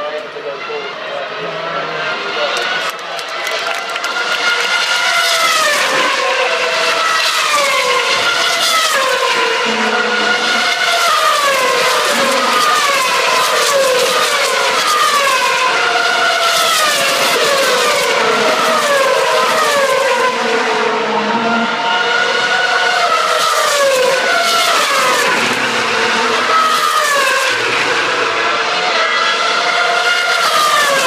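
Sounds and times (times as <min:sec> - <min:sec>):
racing cars passing at speed: 0:00.0 - 0:31.0.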